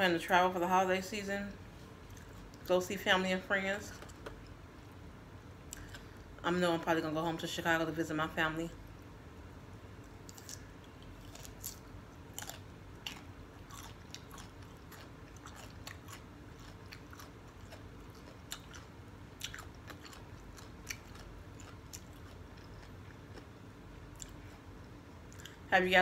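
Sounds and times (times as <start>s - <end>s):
person chewing cucumber: 5.7s - 6.4s, 10.0s - 25.7s.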